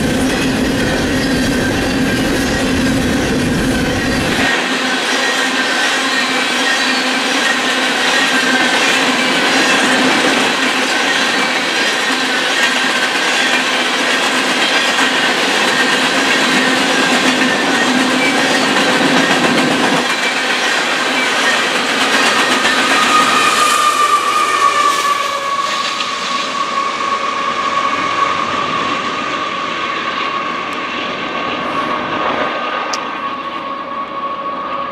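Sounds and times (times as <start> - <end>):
wheels clacking and squealing on rails: 0.0 - 34.9
steady high tone: 15.9 - 30.8.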